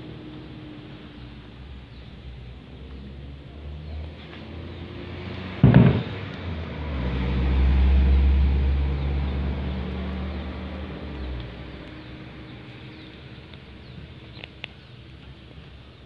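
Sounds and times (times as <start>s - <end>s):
vehicle rumble: 0.0s - 16.0s.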